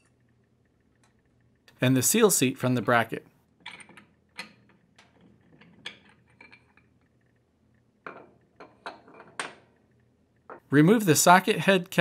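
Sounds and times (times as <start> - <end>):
metal part clinking and tapping: 3.6 - 7.4, 8.0 - 10.6.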